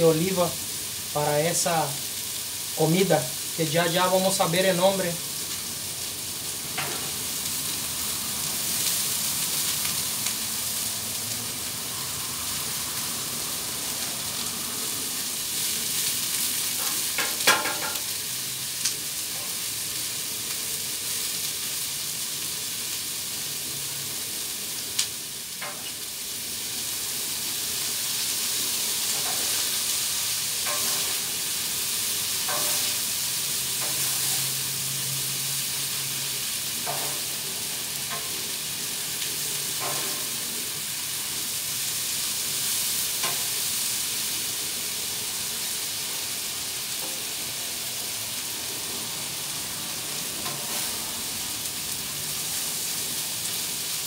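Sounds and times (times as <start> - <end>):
food sizzling on griddle: 0.0 - 54.0
metal spatula clinking on griddle: 17.2 - 18.1, 30.6 - 31.2, 32.5 - 33.0, 33.8 - 34.5, 36.8 - 37.3, 39.8 - 40.3.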